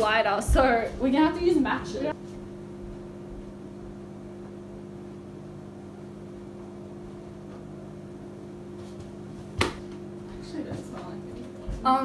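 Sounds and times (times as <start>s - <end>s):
microwave oven humming: 0.0s - 12.0s.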